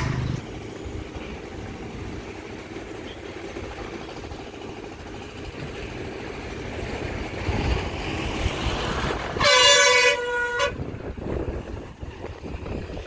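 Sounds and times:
road traffic noise: 0.0s - 13.0s
vehicle horn: 9.4s - 10.8s.

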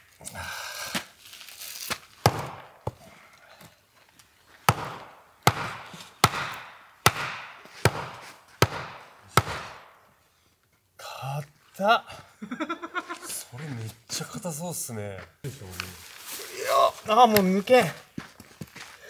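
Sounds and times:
blade chopping hard log: 2.2s - 3.0s, 4.7s - 9.9s.

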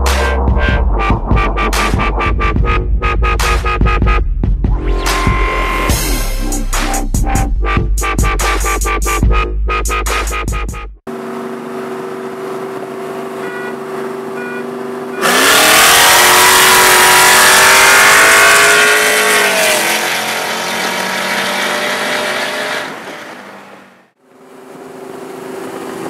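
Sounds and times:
sports car engines accelerating: 11.1s - 23.8s.

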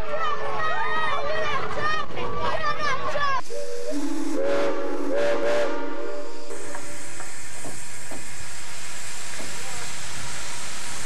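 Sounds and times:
steam hissing: 3.4s - 11.0s
steam locomotive whistle: 3.5s - 6.8s.

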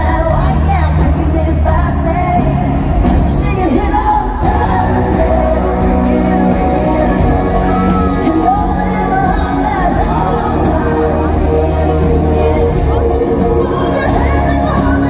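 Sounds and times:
crowd noise: 0.0s - 15.0s
live band music: 0.0s - 15.0s
person singing: 0.0s - 15.0s.

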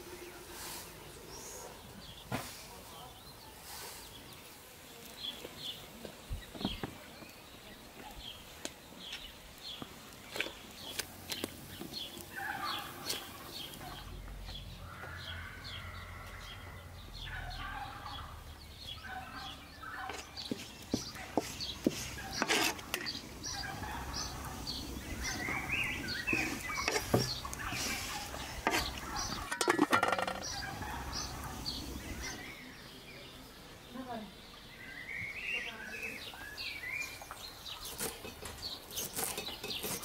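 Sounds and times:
birds warbling: 8.2s - 40.0s
high bird chirps: 12.0s - 32.8s.

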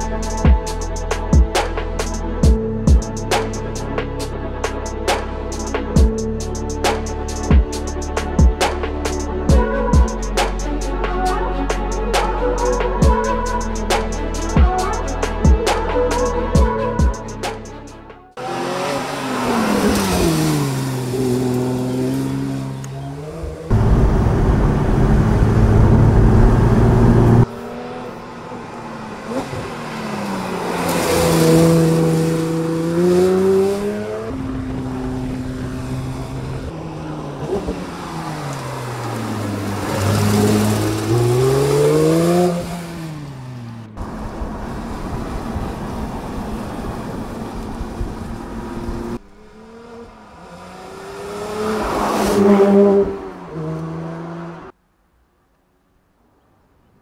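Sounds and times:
sports car engine revving past: 48.5s - 54.7s.

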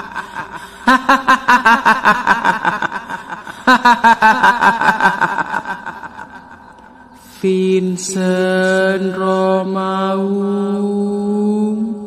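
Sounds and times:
woman cackling laugh: 0.0s - 6.8s.

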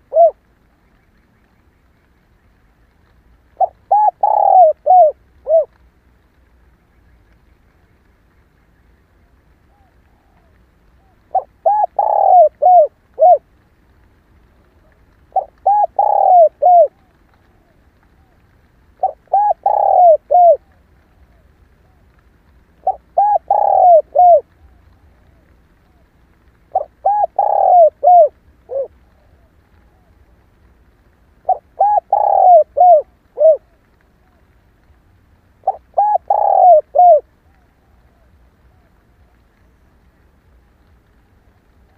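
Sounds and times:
dove cooing: 0.0s - 0.4s, 3.5s - 5.8s, 9.6s - 13.5s, 14.8s - 22.1s, 22.8s - 26.1s, 26.7s - 30.4s, 31.4s - 34.5s, 35.6s - 39.5s.

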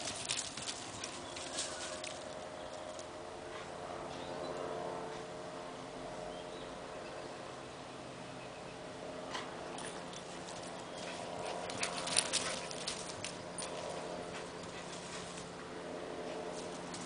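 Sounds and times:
dogs scuffling and playing: 0.0s - 3.1s, 9.3s - 17.0s.

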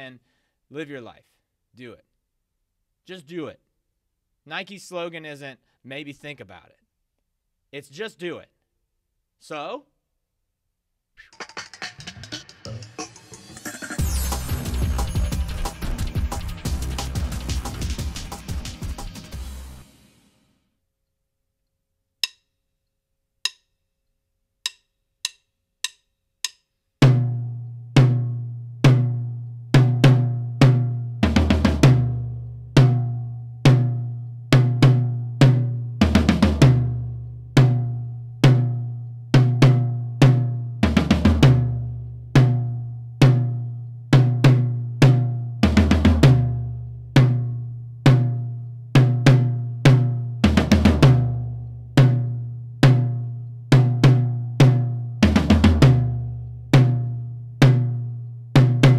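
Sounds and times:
drum kit tom groove: 11.2s - 19.9s, 24.7s - 38.8s, 39.4s - 41.8s, 42.4s - 48.4s, 49.0s - 58.0s, 58.6s - 58.9s
cymbal and bass drum accent: 11.2s - 20.0s, 49.0s - 51.4s, 58.6s - 58.9s
drumstick count-in clicks: 22.2s - 22.5s, 23.4s - 23.7s, 24.6s - 26.7s.

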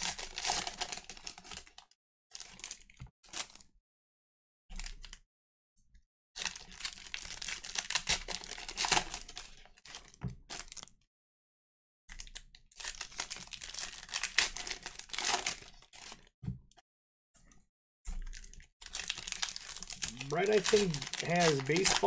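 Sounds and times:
foil wrappers tearing and crinkling: 0.0s - 3.6s, 6.4s - 10.9s, 12.2s - 16.3s, 18.3s - 22.0s.

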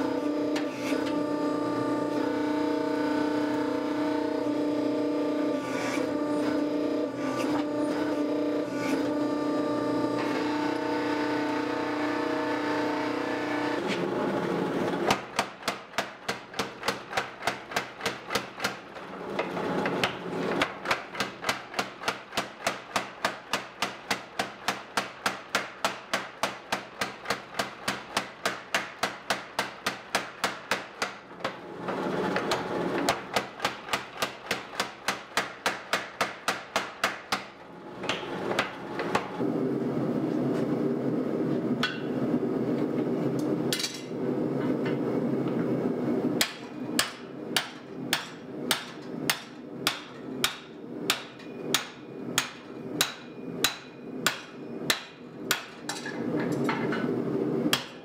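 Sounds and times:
steady mechanical hum: 0.0s - 58.0s
power hammer pounding steel: 15.0s - 39.4s, 46.4s - 56.8s, 57.7s - 58.0s.

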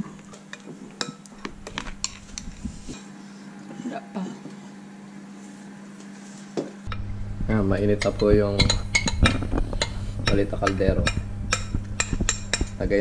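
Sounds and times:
steady low hum: 0.0s - 13.0s
metal spoon clinking in bowl: 8.0s - 10.4s.

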